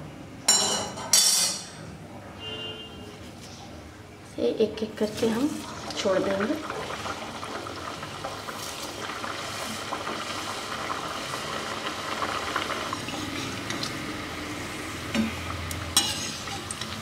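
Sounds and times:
dough frying in oil: 4.5 - 17.0.

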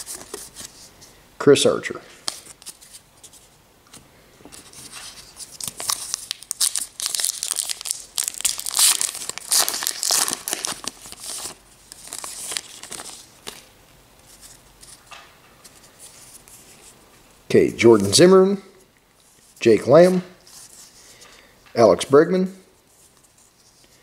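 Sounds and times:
wrapper tearing and crinkling: 5.4 - 13.7.

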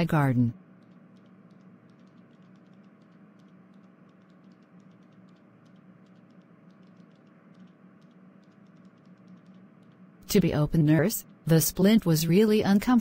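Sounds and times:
faint steady hum: 0.0 - 13.0
light irregular clicks: 0.8 - 10.1.

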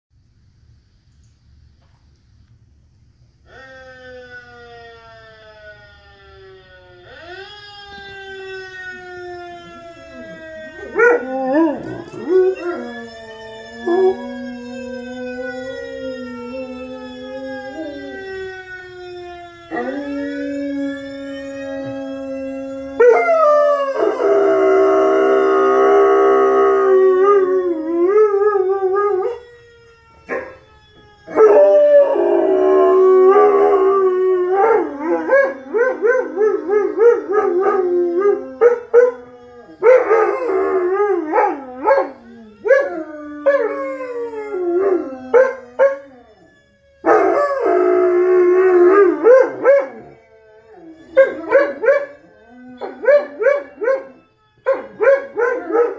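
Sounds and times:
dog howling: 9.7 - 13.2, 47.0 - 55.9.

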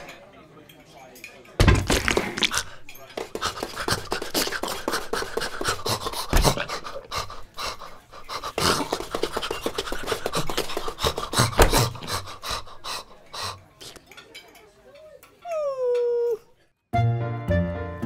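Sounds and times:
cartoon dog panting: 3.2 - 13.6.

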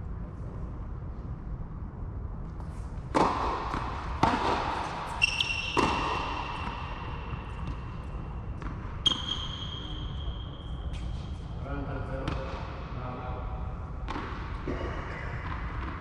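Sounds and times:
tennis ball bouncing: 3.1 - 9.4, 14.0 - 16.0
tennis ball hit by rackets: 3.1 - 9.4, 14.0 - 16.0.

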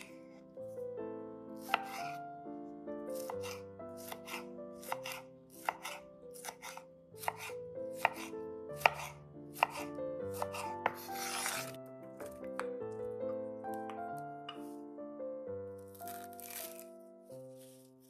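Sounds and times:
knife chopping on cutting board: 1.6 - 2.2, 3.2 - 12.6
knife blade scraping board: 1.7 - 2.2, 3.2 - 11.8.

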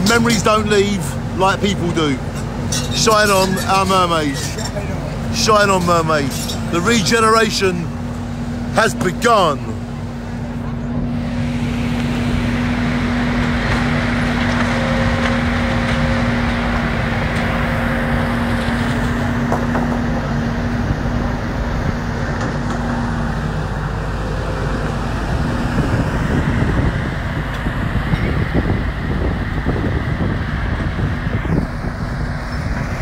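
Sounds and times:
diesel engine humming: 0.0 - 33.0
wind rumble on microphone: 24.9 - 33.0.

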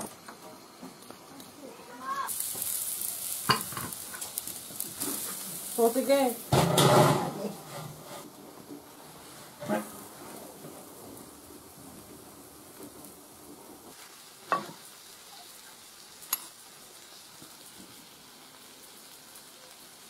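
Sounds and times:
steady faint hiss: 0.0 - 20.0
metal lid clanking: 6.5 - 8.0.

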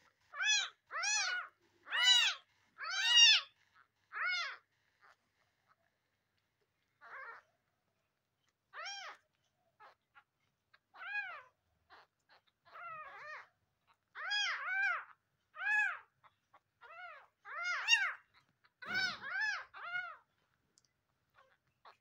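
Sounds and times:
kittens mewing: 10.9 - 20.3.

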